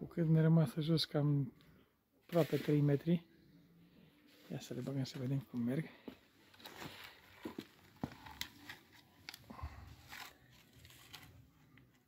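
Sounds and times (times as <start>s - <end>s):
cables and plastic plugs rustling: 5.1s - 12.0s.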